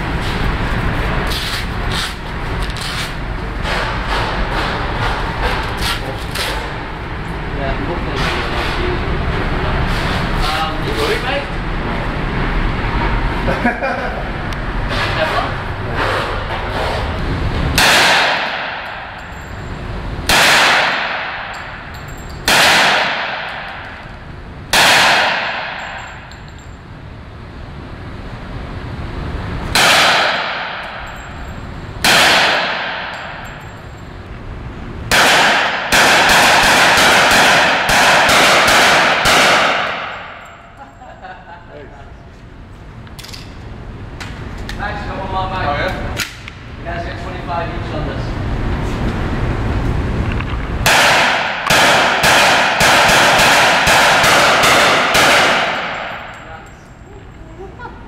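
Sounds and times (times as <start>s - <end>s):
gunshots with echo: 17.7s - 19.3s, 20.2s - 21.8s, 22.4s - 24.0s, 24.7s - 26.1s, 29.7s - 31.2s, 32.0s - 33.6s, 35.1s - 40.6s, 50.8s - 56.6s.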